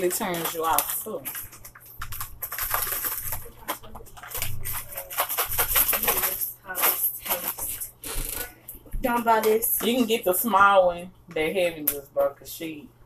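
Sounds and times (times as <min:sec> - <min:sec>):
plastic snack packet crackling: 0:00.0 - 0:08.4.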